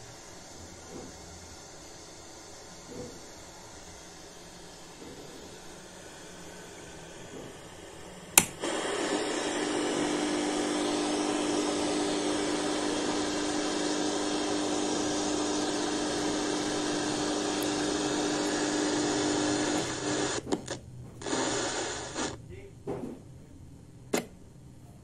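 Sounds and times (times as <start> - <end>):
radio static hiss: 0.0 - 22.7
radio switch click: 8.4 - 8.8, 19.6 - 21.4.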